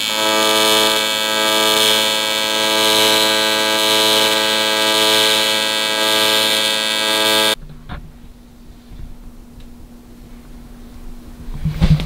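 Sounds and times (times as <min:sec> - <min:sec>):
welding arc buzzing: 0:00.0 - 0:07.6.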